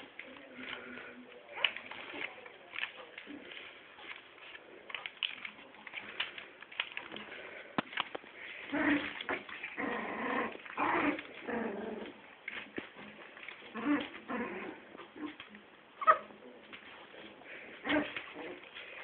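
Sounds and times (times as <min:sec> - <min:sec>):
puppies play-growling and yipping: 0:08.4 - 0:19.0.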